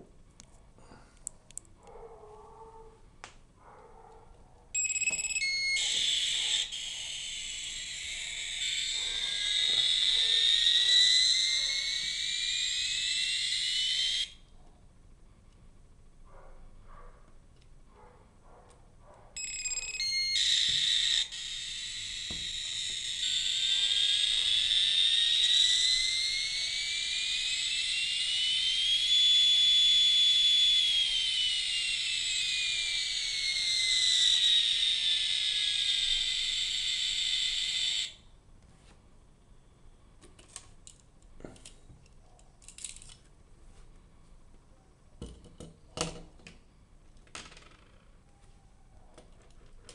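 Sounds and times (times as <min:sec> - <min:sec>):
electronic beeps: 0:04.8 - 0:14.3
buzzy electronic whine: 0:05.1 - 0:14.4, 0:19.7 - 0:38.2
toy handling clicks: 0:40.4 - 0:43.2.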